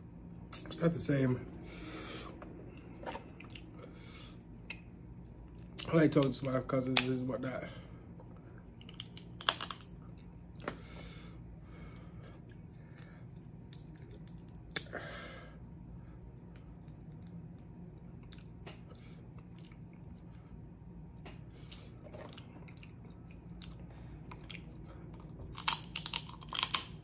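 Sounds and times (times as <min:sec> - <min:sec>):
person chewing: 0:02.3 - 0:04.0, 0:16.4 - 0:20.4, 0:21.5 - 0:27.0.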